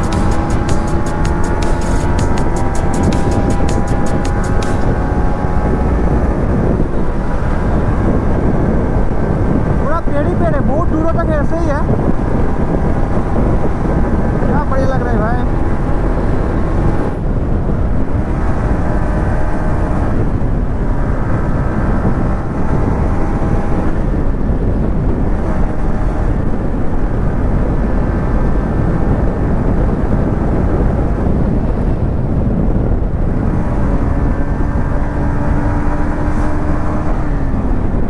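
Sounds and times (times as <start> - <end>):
motorcycle engine: 0.0 - 10.9, 11.6 - 38.0
wind rushing over microphone: 0.0 - 38.0.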